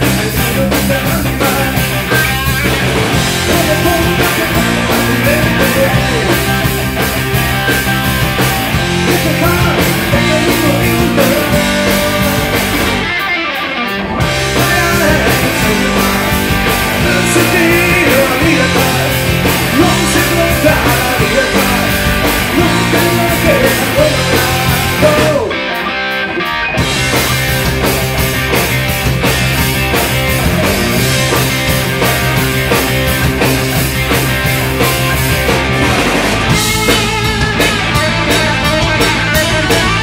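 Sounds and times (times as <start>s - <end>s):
man singing: 0.0s - 2.4s, 3.3s - 6.9s, 9.0s - 12.9s, 14.2s - 25.7s
drum kit: 0.0s - 13.3s, 13.9s - 40.0s
electric bass: 0.0s - 40.0s
electric guitar: 0.0s - 40.0s.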